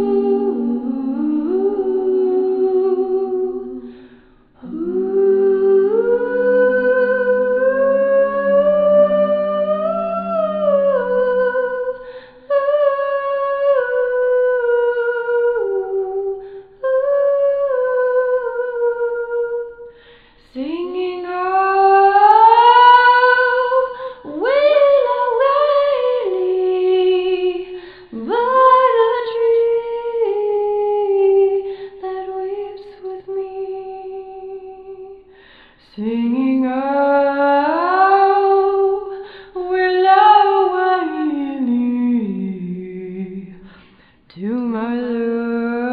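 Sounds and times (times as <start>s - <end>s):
woman singing wordless melody: 0.0s - 45.9s.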